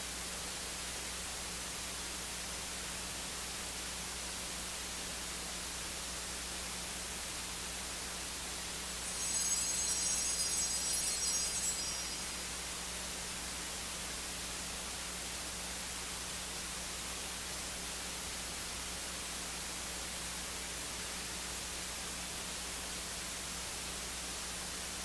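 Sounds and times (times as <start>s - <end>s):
electronic hiss: 9.0s - 13.7s.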